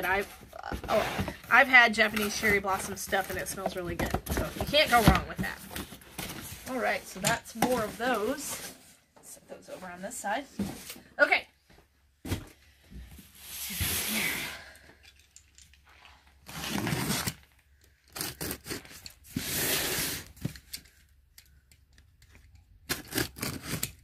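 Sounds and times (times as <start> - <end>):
knife slitting packing tape: 18.1 - 20.3, 22.8 - 24.0.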